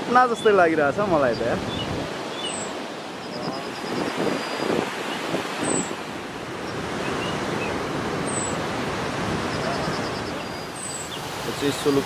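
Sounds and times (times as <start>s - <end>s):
waterfall rushing onto rocks: 8.7s - 12.0s.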